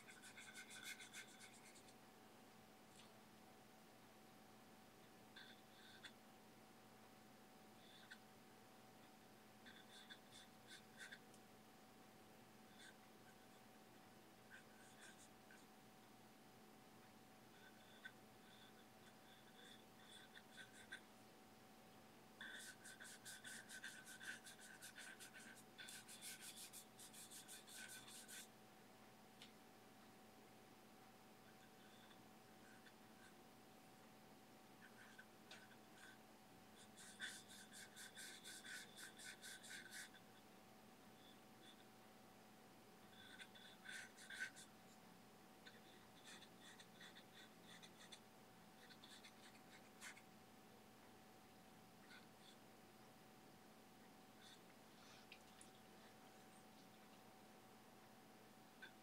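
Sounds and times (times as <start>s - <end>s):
brush scrubbing paint on panel: 22.4s - 28.5s.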